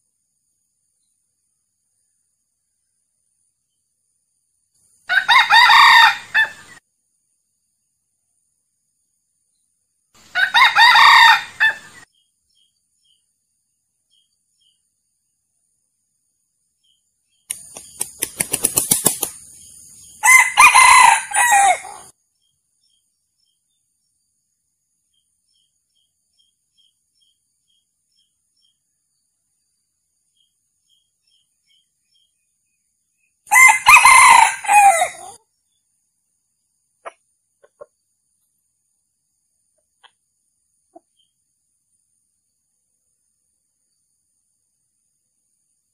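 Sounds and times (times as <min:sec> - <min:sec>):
rooster crowing: 0:05.1 - 0:06.7, 0:10.3 - 0:11.9, 0:20.2 - 0:22.1, 0:33.5 - 0:35.4.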